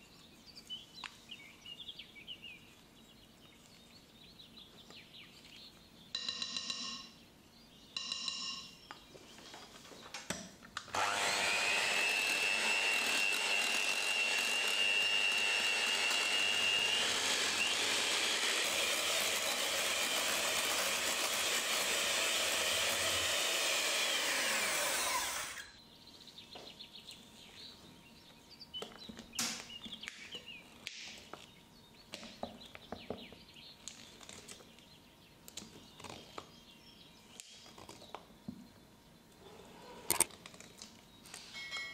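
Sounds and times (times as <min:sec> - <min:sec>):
electric hand mixer whining: 0:10.9 - 0:25.8.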